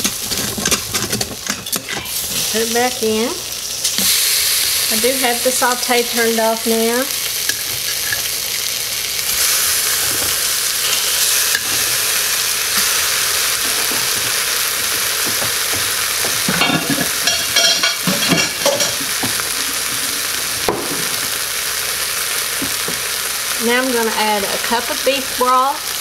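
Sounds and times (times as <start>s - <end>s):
steak sizzling in a pot: 0.0s - 26.0s
plate and utensils clinking: 15.3s - 20.2s.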